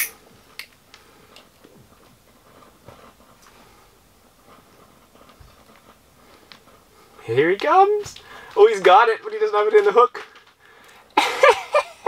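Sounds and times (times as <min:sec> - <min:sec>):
low steady hiss: 0:00.0 - 0:12.0
faint clicks and knocks: 0:00.4 - 0:03.8, 0:04.4 - 0:08.6.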